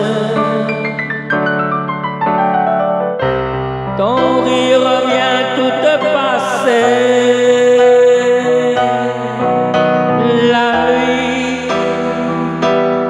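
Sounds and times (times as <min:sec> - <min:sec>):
man singing amplified: 0:00.0 - 0:01.2, 0:04.0 - 0:09.6, 0:10.2 - 0:13.0
electric keyboard chords: 0:00.0 - 0:13.0.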